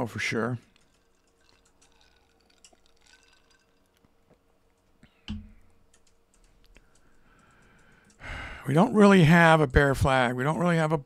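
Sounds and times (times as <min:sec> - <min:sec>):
keyboard and mouse clicks: 0:04.7 - 0:08.2.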